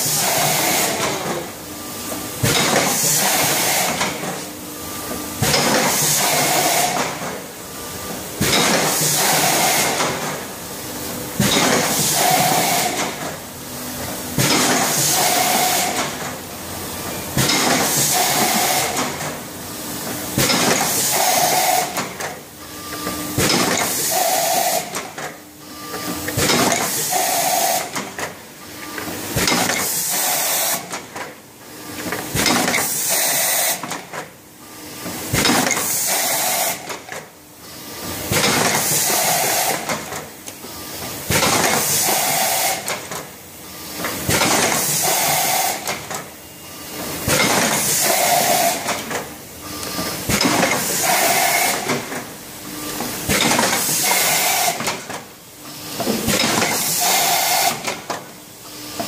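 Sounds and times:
hissing air bursts: 0.0s - 1.1s, 5.8s - 7.0s, 8.8s - 10.0s, 11.8s - 13.0s, 14.6s - 16.0s, 17.7s - 19.1s, 20.8s - 22.0s, 23.8s - 25.0s, 26.8s - 28.0s, 29.8s - 31.0s, 32.8s - 33.9s, 35.8s - 36.9s, 38.8s - 39.9s, 41.7s - 43.0s, 44.6s - 45.9s, 47.7s - 49.0s, 50.7s - 52.0s, 53.7s - 54.9s, 56.7s - 57.9s.

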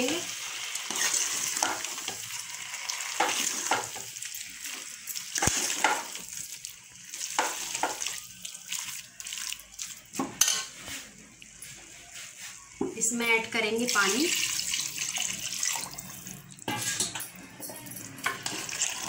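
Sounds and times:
oil sizzling: 0.0s - 11.9s, 13.0s - 17.2s, 18.2s - 19.0s
ladle scraping metal pot: 0.9s - 1.8s.

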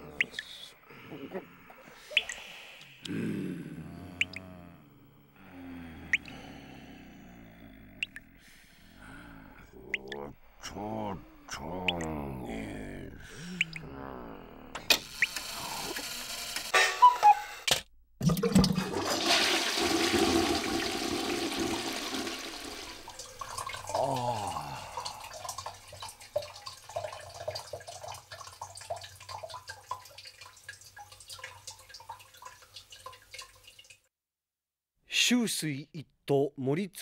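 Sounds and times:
water drips: 0.1s - 0.6s, 2.0s - 3.2s, 4.2s - 4.5s, 8.0s - 8.2s, 9.9s - 10.4s, 11.7s - 12.3s, 13.4s - 13.9s, 23.0s - 34.0s
water rushing in a basin: 18.2s - 34.0s.

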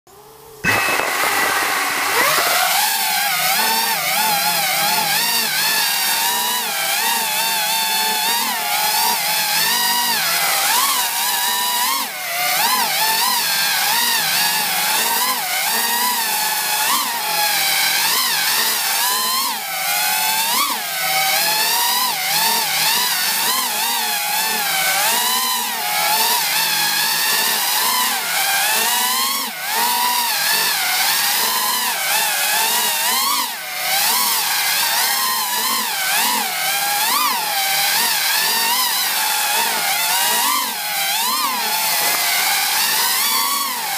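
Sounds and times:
quadcopter propellers whining: 0.1s - 43.9s.

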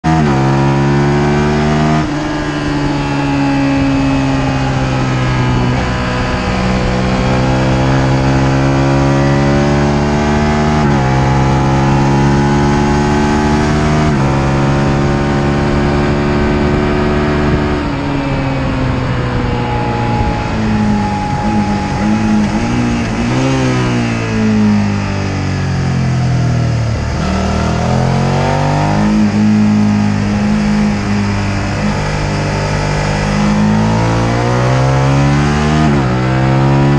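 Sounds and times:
motorcycle engine revving: 0.0s - 36.9s
wind rush: 2.0s - 9.0s, 14.0s - 35.3s.

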